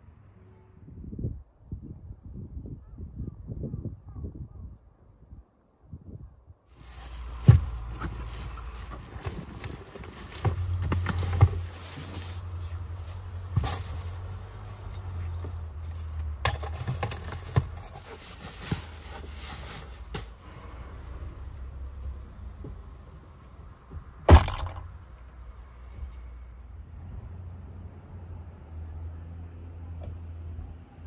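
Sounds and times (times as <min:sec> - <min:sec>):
gusting wind rumble: 0:00.8 - 0:10.2
loud thump: 0:24.3 - 0:25.0.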